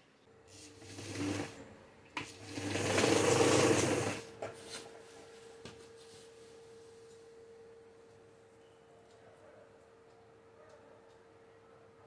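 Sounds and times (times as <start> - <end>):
sewing machine stitching: 0.8 - 1.6, 2.2 - 4.3.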